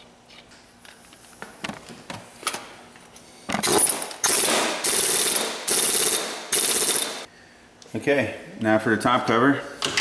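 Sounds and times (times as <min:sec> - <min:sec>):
impact wrench hammering: 0:03.6 - 0:07.3.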